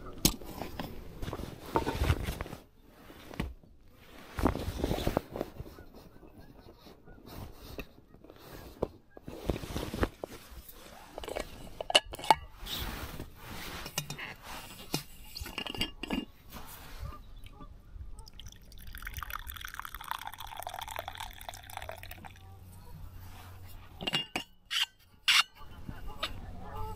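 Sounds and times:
hot drink pouring into cup: 18.2s - 22.4s.

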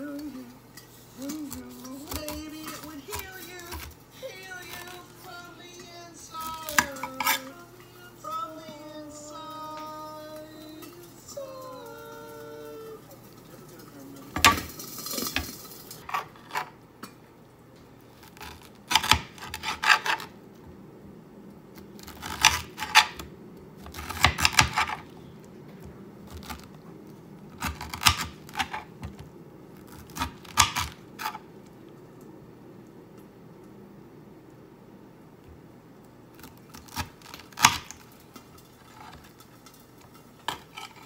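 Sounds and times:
knife cutting pineapple on board: 1.2s - 3.9s, 6.4s - 7.6s, 18.2s - 20.3s, 22.0s - 25.1s, 27.5s - 29.2s, 29.8s - 31.4s, 36.4s - 37.9s.

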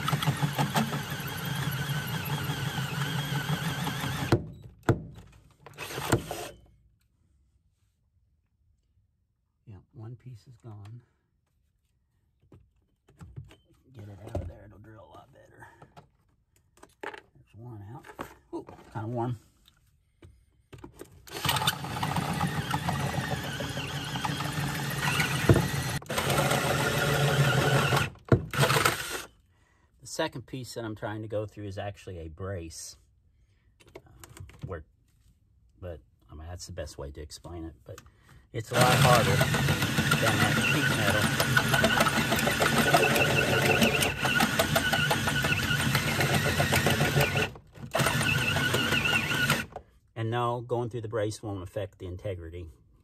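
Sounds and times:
drill hole saw cutting steel: 0.0s - 4.3s, 21.3s - 29.3s, 38.7s - 49.7s.

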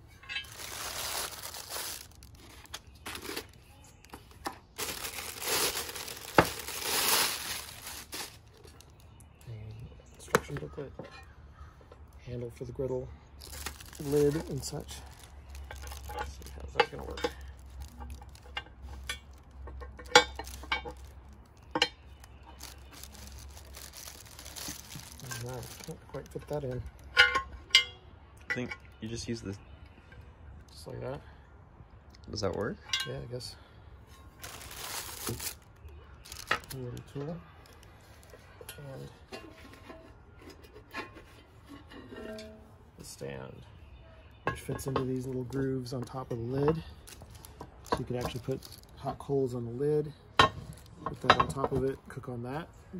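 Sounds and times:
plastic bag crinkling: 0.3s - 9.2s, 13.4s - 27.1s, 34.4s - 38.3s, 47.0s - 49.0s.

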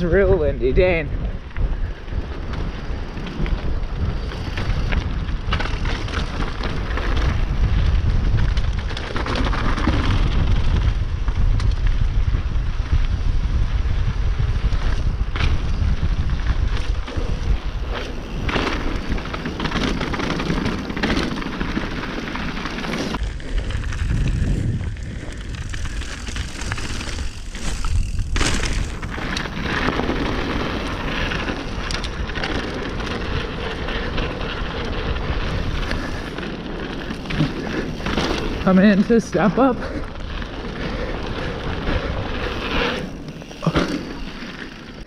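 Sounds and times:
bike tyres rolling over dirt: 0.0s - 45.0s
wind buffeting microphone: 0.0s - 45.0s
bike knocking over bumps: 25.4s - 33.3s.

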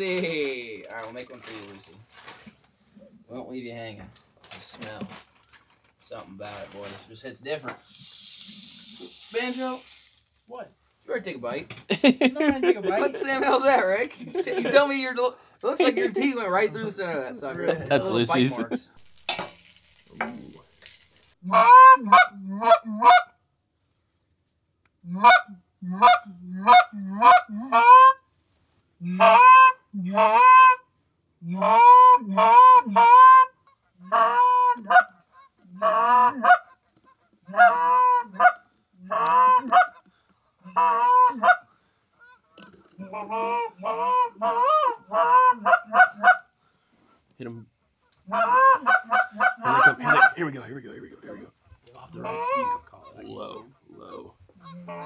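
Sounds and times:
goose honking: 21.4s - 23.3s, 25.1s - 28.2s, 29.0s - 30.8s, 31.6s - 46.5s, 48.2s - 50.5s, 52.1s - 55.0s.

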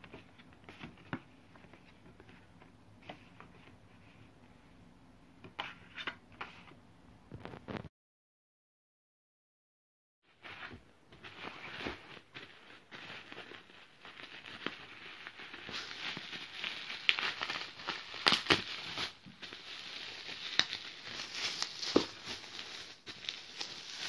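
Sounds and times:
bubble wrap crinkling: 11.2s - 24.0s
bubble wrap snapping: 11.5s - 24.0s.

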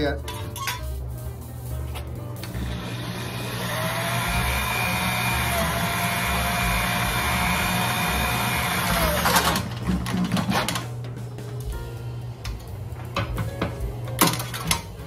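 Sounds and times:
small electric motor whining: 2.5s - 9.6s.

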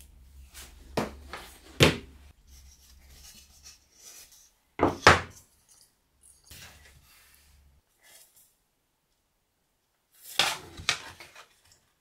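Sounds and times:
faint rubbing and handling: 2.3s - 4.6s.

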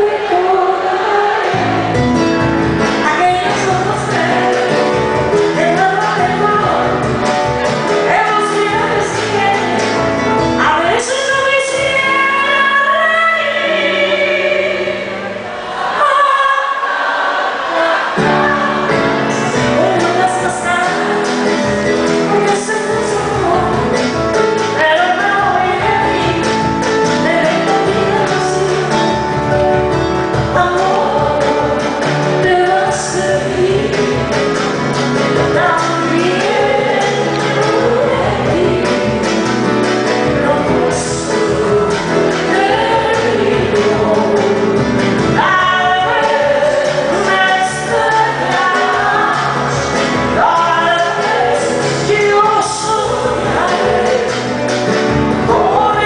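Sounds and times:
woman singing a ballad: 0.0s - 15.3s, 15.9s - 17.0s, 17.7s - 56.0s
keyboard accompaniment: 0.0s - 56.0s.

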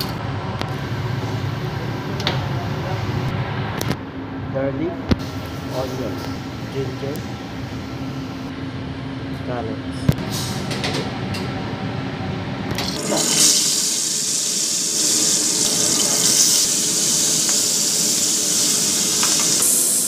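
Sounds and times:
fish sizzling in hot oil: 13.0s - 20.0s.

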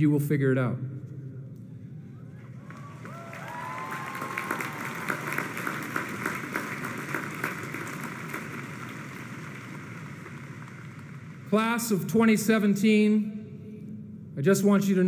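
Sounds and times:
large audience applauding: 2.4s - 11.6s.

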